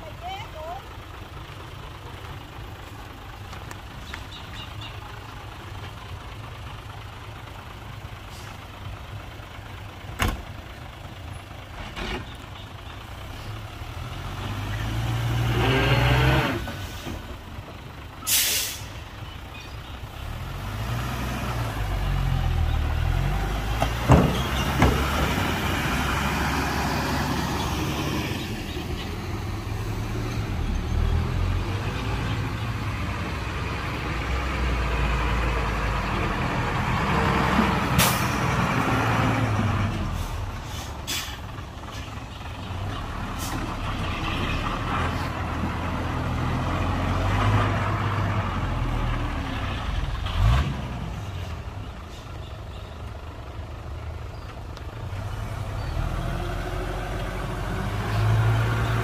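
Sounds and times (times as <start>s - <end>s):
heavy diesel engines revving: 0.0s - 59.0s
air brake hisses: 18.2s - 19.0s, 40.2s - 41.5s.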